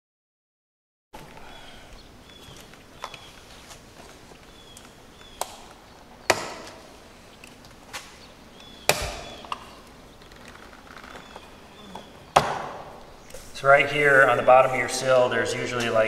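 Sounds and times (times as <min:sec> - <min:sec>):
small birds chirping: 0:01.2 - 0:16.0.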